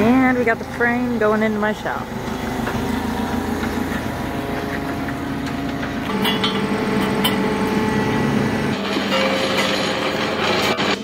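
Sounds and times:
forklift engine running: 0.0 - 11.0
sharp metal clanks: 6.0 - 7.8, 8.7 - 11.0.

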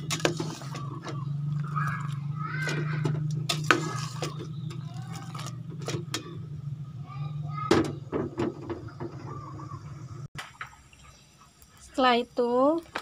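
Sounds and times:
greens stirred in water: 0.0 - 5.6
low steady hum: 0.0 - 12.9.

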